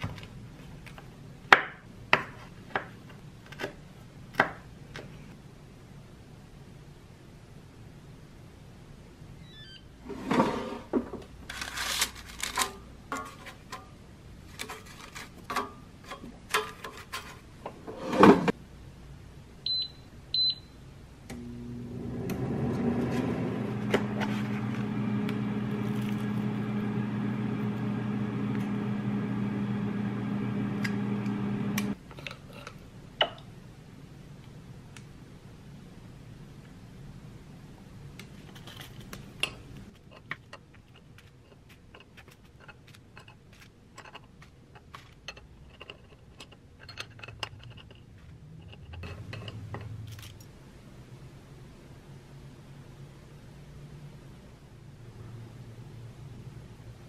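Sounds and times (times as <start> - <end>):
objects being handled: 10.1 - 18.5, 38.2 - 50.6
air fryer fan humming: 21.3 - 32.0.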